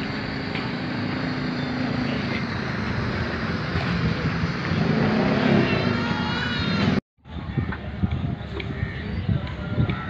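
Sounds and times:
wind buffeting microphone: 2.6 - 10.0.

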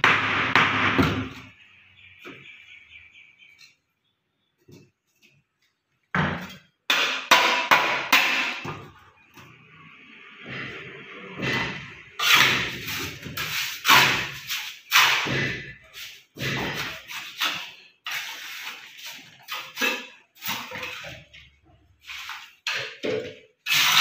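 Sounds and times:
trowel scraping wet mortar: 12.2 - 21.3, 23.6 - 24.0.

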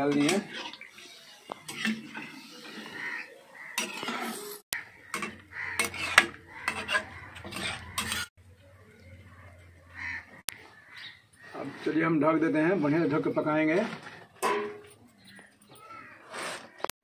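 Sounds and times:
metal spatula scraping a pot: 0.0 - 8.3, 11.4 - 14.9.

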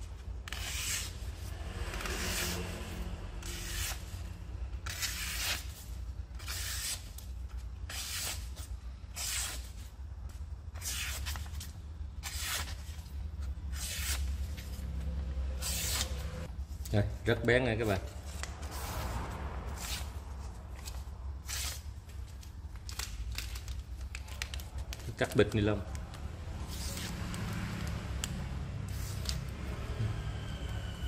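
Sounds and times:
knife slicing paper: 4.8 - 7.2, 13.7 - 14.6, 15.6 - 16.4, 26.6 - 27.4, 28.9 - 29.5.

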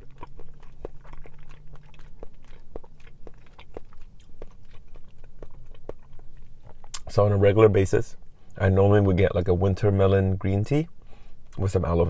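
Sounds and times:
person chewing: 0.0 - 7.1.

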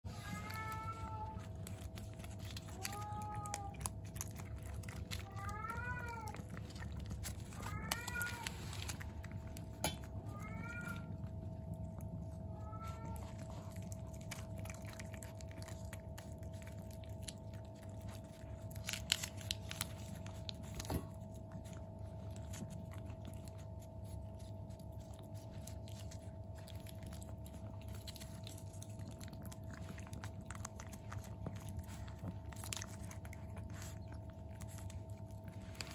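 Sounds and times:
kittens meowing: 0.1 - 16.8
faint hum: 0.1 - 35.9
kittens licking wet clicks: 0.3 - 35.9.

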